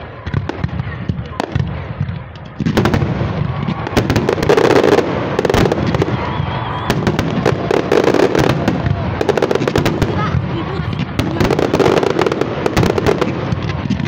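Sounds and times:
fireworks crackling and popping: 0:00.0 - 0:14.0.

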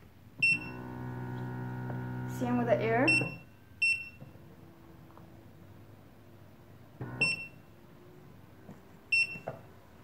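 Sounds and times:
control panel beeps: 0:03.1 - 0:04.2, 0:07.2 - 0:07.6, 0:09.1 - 0:09.5.

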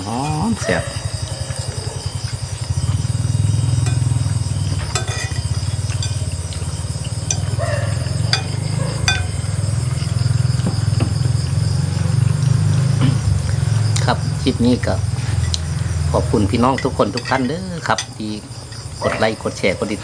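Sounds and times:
small engine idling: 0:00.0 - 0:20.0
spoons clinking on plates: 0:03.8 - 0:04.2, 0:04.8 - 0:06.3, 0:07.2 - 0:07.6, 0:08.3 - 0:09.4, 0:16.7 - 0:18.2.

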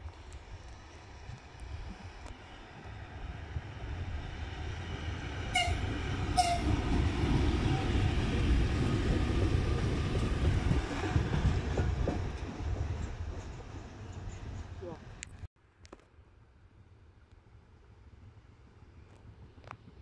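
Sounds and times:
train wheels rumbling on rail: 0:00.0 - 0:15.3
locomotive horn toots: 0:05.5 - 0:06.8.

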